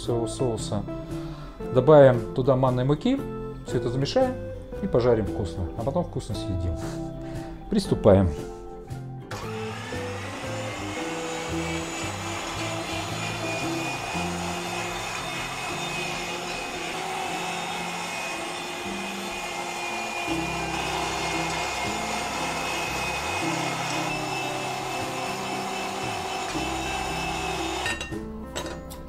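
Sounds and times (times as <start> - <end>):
background music: 0.0 - 29.0
electric meat grinder running: 9.3 - 28.1.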